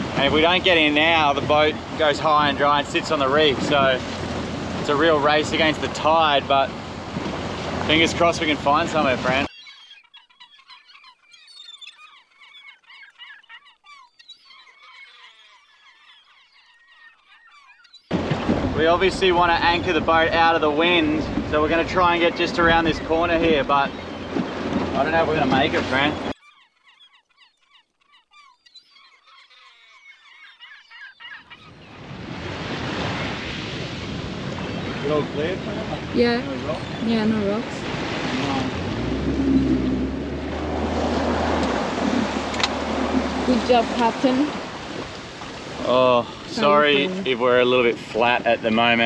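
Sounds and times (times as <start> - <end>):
flock of seabirds calling: 0.0 - 3.9, 7.5 - 38.2, 42.2 - 47.9
rush of wind and water: 0.0 - 9.5, 18.1 - 26.4, 31.5 - 49.0.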